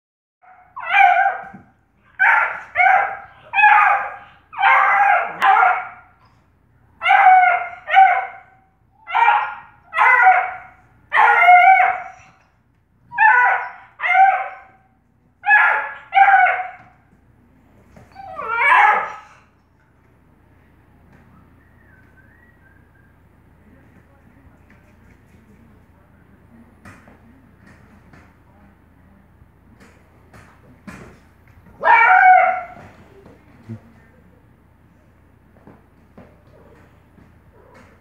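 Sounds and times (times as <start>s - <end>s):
puppy barking: 0.4s - 6.3s, 7.0s - 12.4s, 13.1s - 17.0s, 18.1s - 19.4s, 31.8s - 32.9s.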